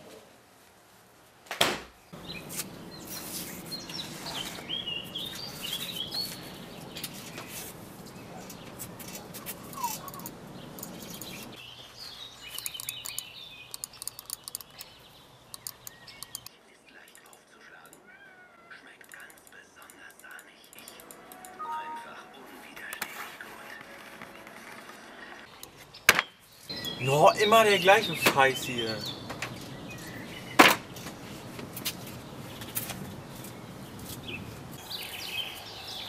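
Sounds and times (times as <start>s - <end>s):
small birds chirping: 2.0s - 21.1s, 25.4s - 36.0s
laptop and mouse clicks: 12.5s - 14.9s, 15.5s - 16.5s.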